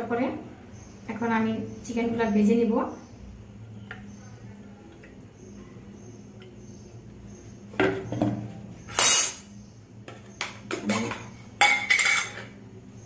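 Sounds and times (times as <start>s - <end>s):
utensil knocking and clunking: 7.7s - 8.6s.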